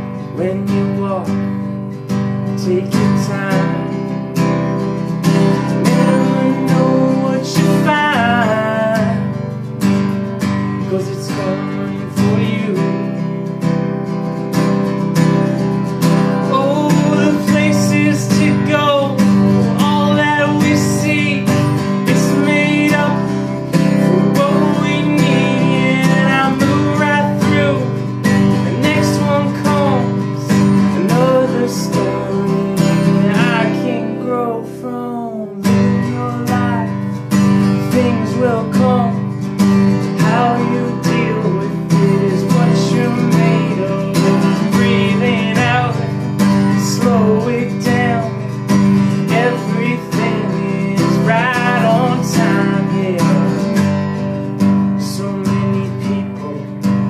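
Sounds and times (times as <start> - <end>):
acoustic guitar strumming: 0.0 - 57.0
man singing wordlessly: 0.0 - 57.0.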